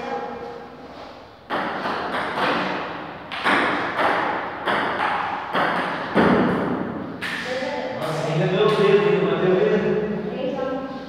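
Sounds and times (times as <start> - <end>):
table tennis ball hitting paddles: 1.5 - 7.5.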